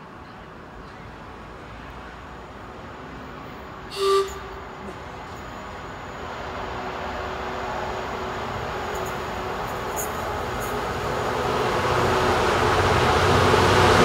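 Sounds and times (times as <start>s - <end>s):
train rumble: 0.0s - 14.0s
train horn toot: 3.9s - 4.9s.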